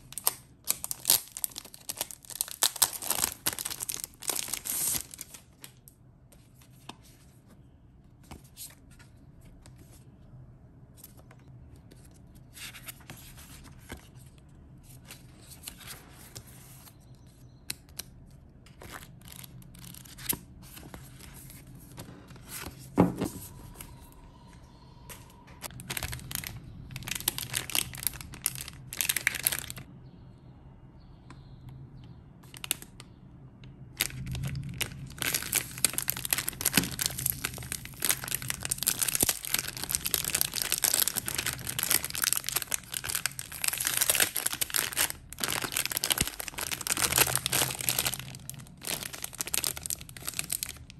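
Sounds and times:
plastic wrapping crinkling: 0.0 - 5.9, 25.6 - 29.9, 33.9 - 50.9
book pages flipping: 10.9 - 24.2.

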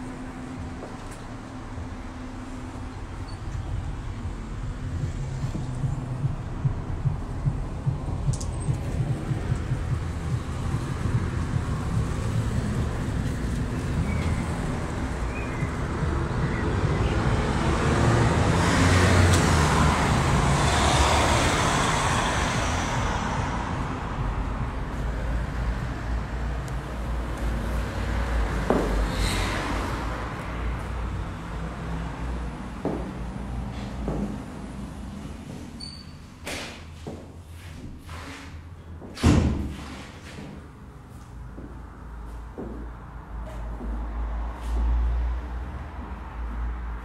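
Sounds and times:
low traffic rumble: 0.0 - 47.0
car passing: 3.8 - 35.5.

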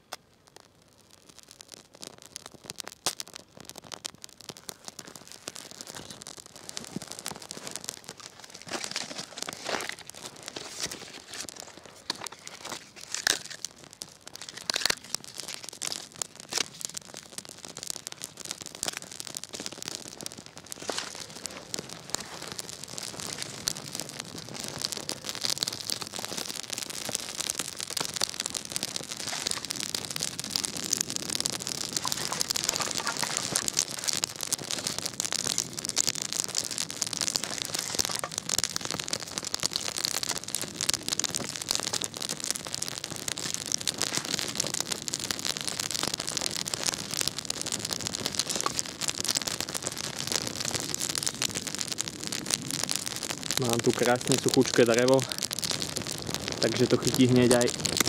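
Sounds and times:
small fire crackling: 0.0 - 58.0
bark and wood rustling: 5.4 - 17.0, 18.8 - 23.9, 29.1 - 30.1, 31.7 - 35.6, 36.6 - 38.9.

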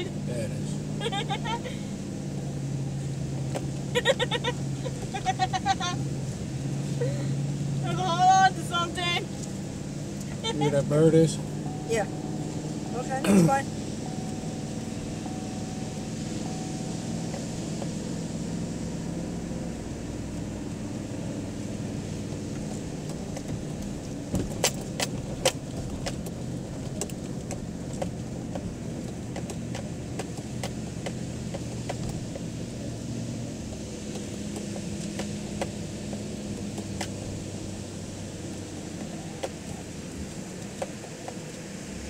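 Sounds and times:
pickup engine and tyre drone: 0.0 - 26.3.

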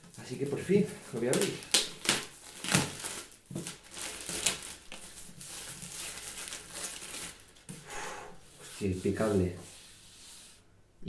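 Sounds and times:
plastic shrink-wrap crinkling: 0.0 - 7.8.

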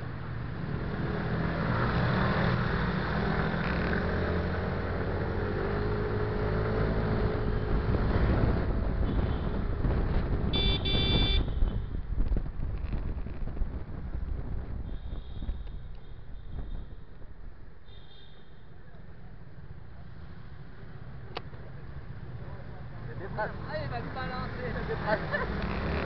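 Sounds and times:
wind buffeting microphone: 7.5 - 17.5.

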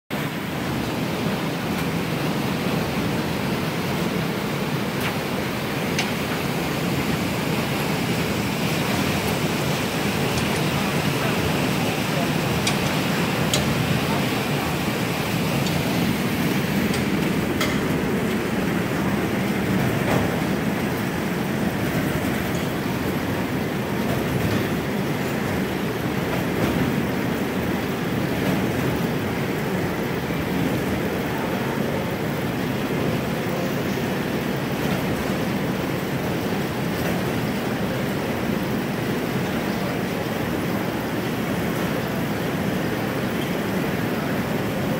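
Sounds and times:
machine rumbling and rattling: 1.8 - 31.0.

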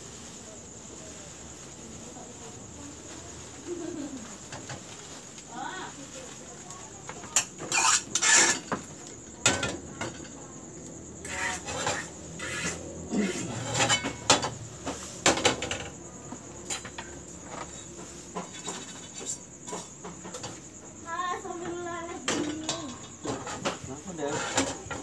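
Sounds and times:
metal pans clattering on stove: 7.3 - 10.4, 11.2 - 16.0, 22.3 - 25.0.

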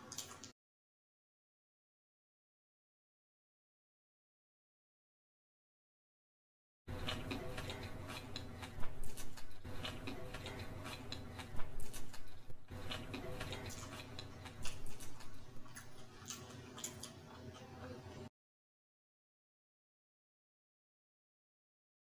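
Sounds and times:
close chewing and lip-smacking: 0.0 - 0.5, 6.9 - 18.2.

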